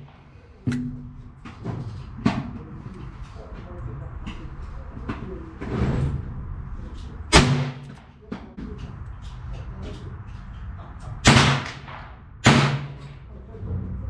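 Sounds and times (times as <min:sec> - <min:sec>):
low ringing hum: 0:00.0 - 0:11.2.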